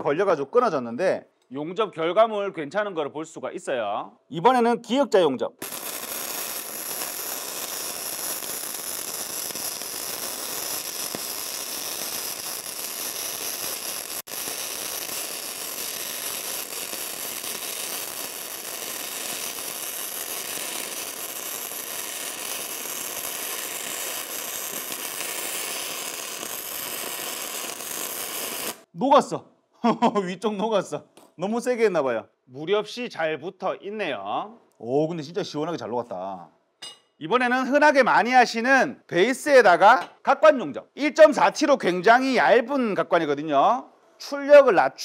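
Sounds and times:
welding arc sizzling: 5.6 - 28.9.

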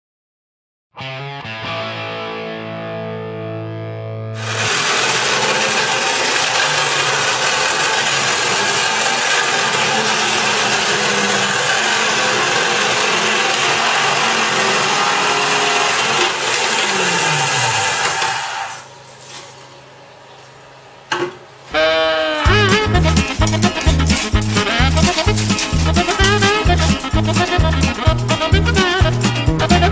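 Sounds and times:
music: 0.9 - 4.7, 21.7 - 29.9
wall chaser cutting into wall: 4.4 - 18.8.

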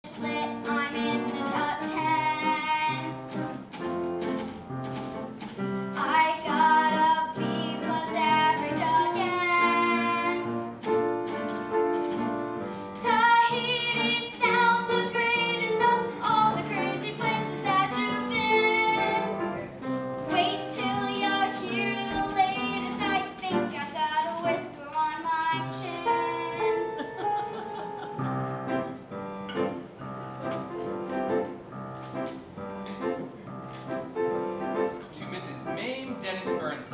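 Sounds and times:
child singing: 0.0 - 3.2, 6.0 - 10.5, 13.0 - 19.3, 20.3 - 26.9
instrumental accompaniment: 0.0 - 36.9.

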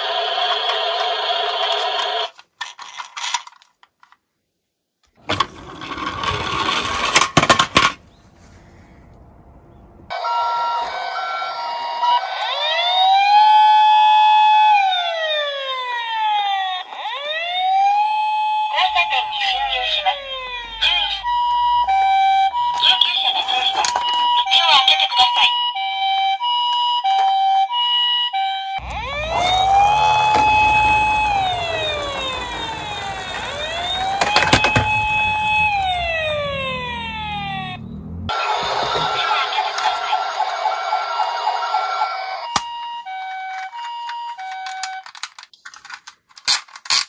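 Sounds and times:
toy ambulance siren: 0.0 - 2.4, 10.1 - 45.5
toy rolling on wooden slope: 0.0 - 4.2, 5.2 - 8.5
clicks: 42.5 - 47.0.

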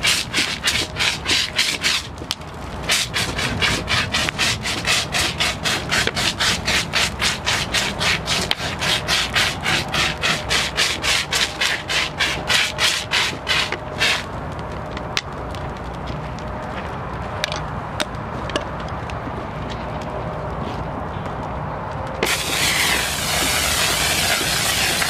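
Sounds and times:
fire extinguisher spraying hiss: 2.9 - 14.3, 22.2 - 25.0.

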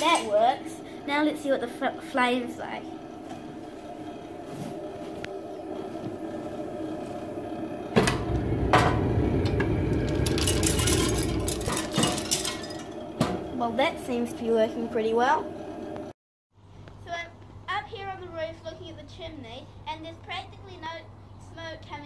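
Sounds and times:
scraping: 0.0 - 16.0
boiler humming: 0.0 - 16.2
low rumble of pellet fire: 0.6 - 16.1.

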